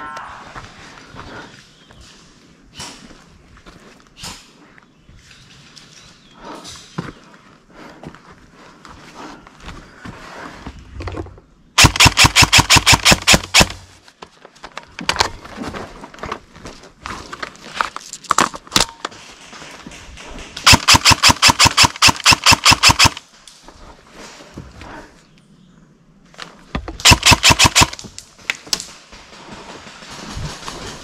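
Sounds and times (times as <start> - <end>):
airsoft rifle rapid fire: 11.8 - 13.8, 20.6 - 23.2, 27.0 - 28.0.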